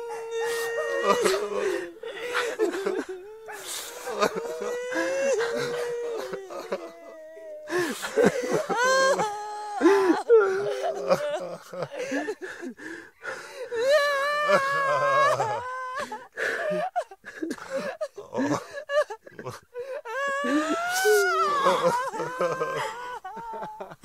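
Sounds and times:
gasping breaths: 0:00.0 - 0:14.1
people crying and wailing: 0:00.0 - 0:24.0.

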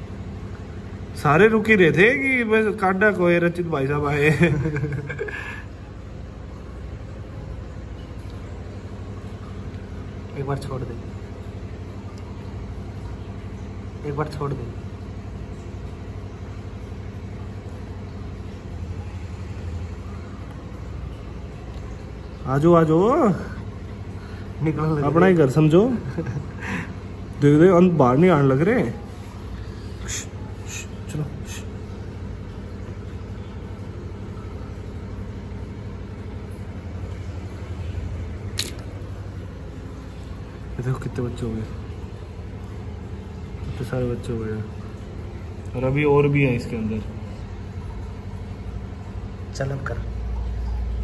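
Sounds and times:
low mechanical hum: 0:00.0 - 0:51.0
sharp click: 0:38.6 - 0:38.9.

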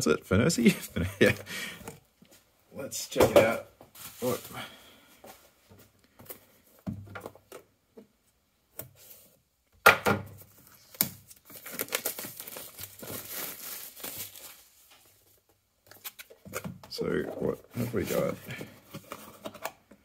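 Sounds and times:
plastic film crinkling: 0:10.7 - 0:16.4
plastic shrink-wrap ripping: 0:10.8 - 0:14.7.

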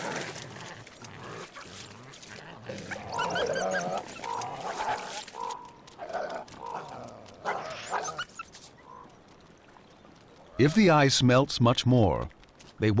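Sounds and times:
wild canids whining and yelping: 0:00.0 - 0:09.4.

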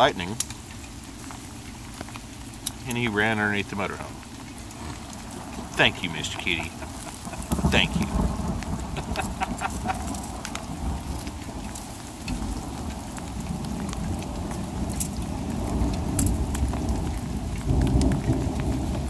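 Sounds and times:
heavy rain: 0:00.0 - 0:19.0
thunder rumble: 0:03.9 - 0:19.0.

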